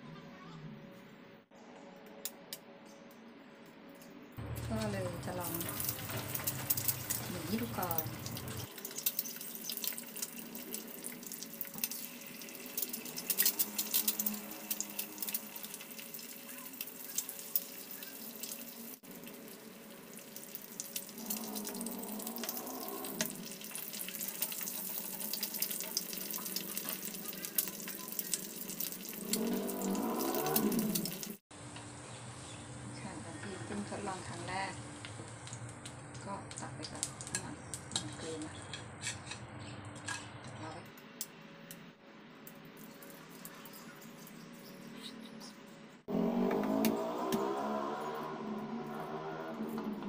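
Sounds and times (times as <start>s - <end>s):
eggs sizzling in oil: 4.4s - 40.1s, 42.4s - 45.0s.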